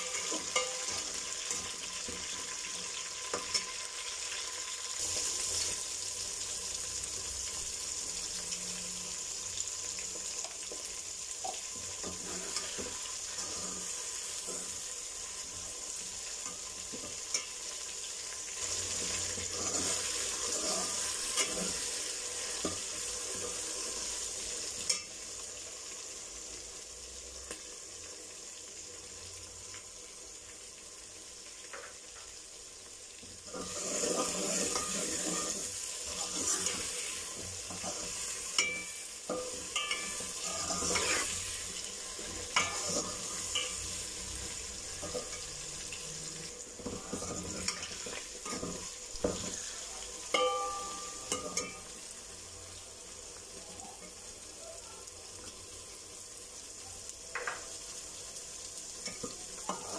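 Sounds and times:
vegetables sizzling in oil: 0.0s - 59.9s
metal spoon scraping a pot: 12.0s - 14.8s, 18.9s - 22.0s, 33.5s - 45.6s, 46.8s - 49.7s.

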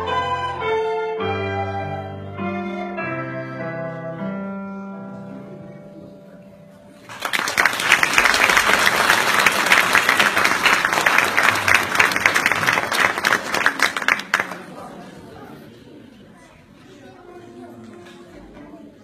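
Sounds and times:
keyboard and wind instruments chord: 0.0s - 6.9s
audience applause: 7.0s - 15.3s.

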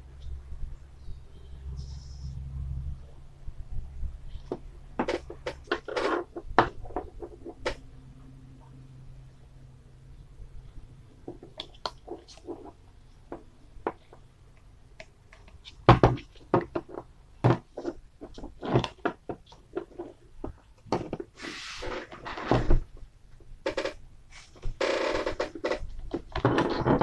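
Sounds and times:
brief scraping hiss: 21.4s - 21.8s.

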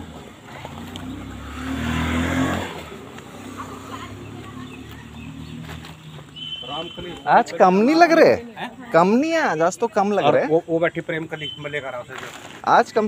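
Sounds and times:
vehicle engine passing by: 0.0s - 7.0s.

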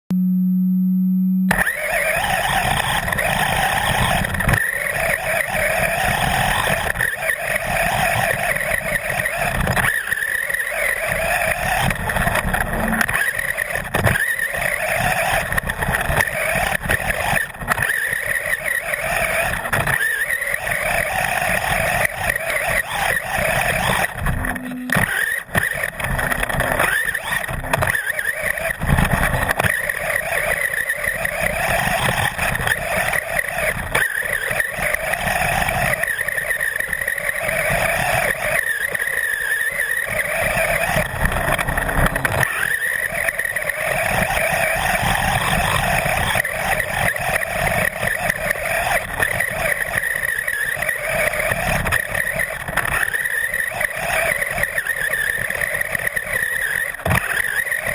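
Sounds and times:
electric motor whining: 0.2s - 57.9s.

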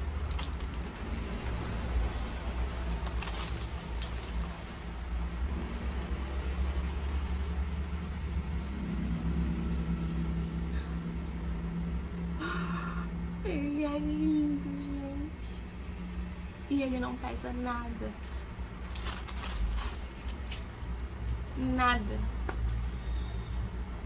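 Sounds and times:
plastic bag crinkling: 0.0s - 4.9s, 18.2s - 20.7s
low machine hum: 0.0s - 24.0s.

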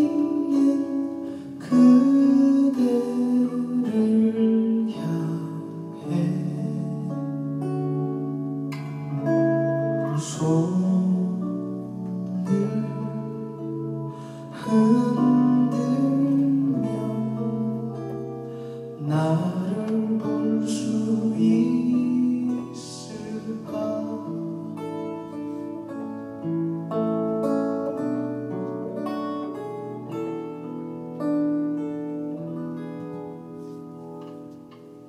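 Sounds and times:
man singing slow song: 0.0s - 7.8s, 9.8s - 25.2s
acoustic guitar: 0.0s - 35.0s.

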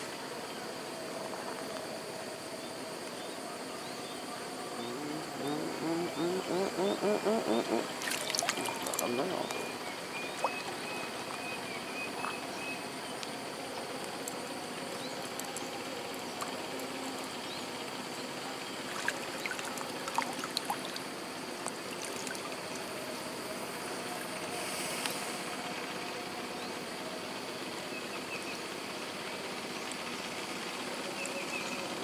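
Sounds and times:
rushing outdoor hiss: 0.0s - 32.0s.

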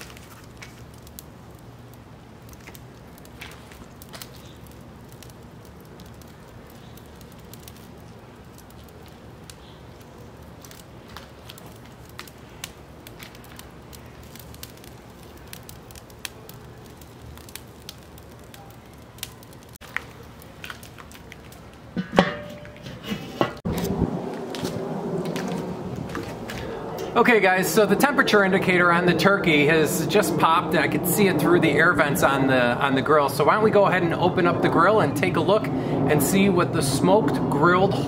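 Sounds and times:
charcoal fire crackling: 0.0s - 38.0s
small sharp pops: 2.5s - 5.3s.

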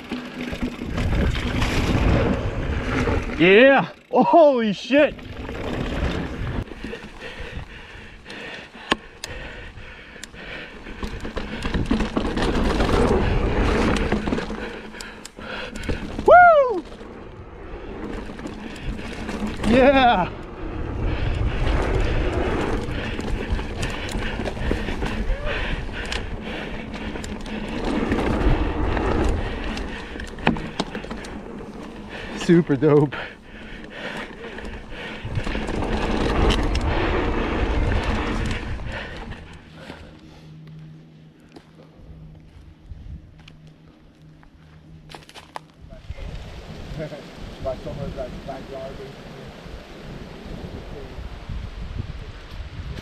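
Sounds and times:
wind buffeting microphone: 0.0s - 3.4s, 9.2s - 40.1s, 42.0s - 43.5s, 45.8s - 53.0s
tyres rolling over dirt: 0.0s - 9.0s, 10.3s - 40.3s
bike clicks and rattles: 0.0s - 46.3s, 52.4s - 53.0s
deep rumble: 10.4s - 32.4s, 33.1s - 47.4s.

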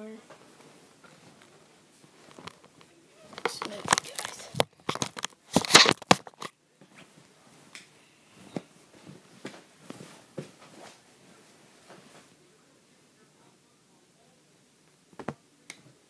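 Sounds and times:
handling clicks and rustles: 1.0s - 7.1s
faint clicks and bumps: 2.2s - 6.5s.

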